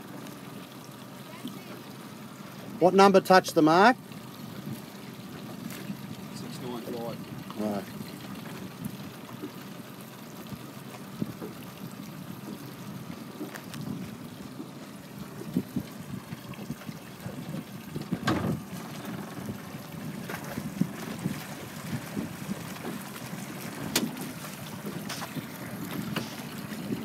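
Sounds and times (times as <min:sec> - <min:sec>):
small waves lapping: 0:00.0 - 0:27.0
wind across microphone: 0:15.3 - 0:22.8
wind thumps on microphone: 0:15.4 - 0:18.7.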